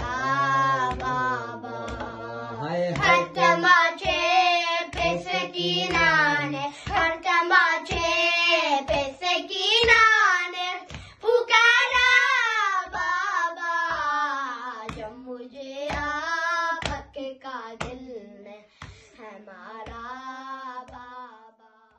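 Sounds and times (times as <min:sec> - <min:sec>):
boys chanting in unison: 0:00.0 - 0:10.2
chest-beating slaps: 0:00.0 - 0:10.2, 0:14.9 - 0:15.2, 0:16.8 - 0:17.2.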